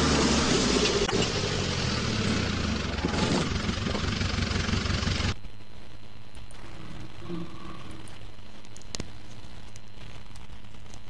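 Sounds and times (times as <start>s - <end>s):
tractor engine running: 0.0s - 5.4s.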